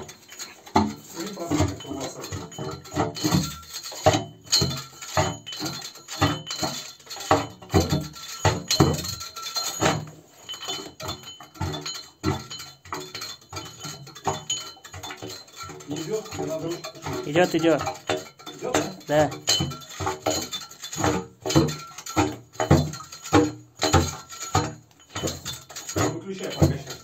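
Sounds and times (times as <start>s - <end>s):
well bailer clanking in metal pipe: 0.0s - 27.0s.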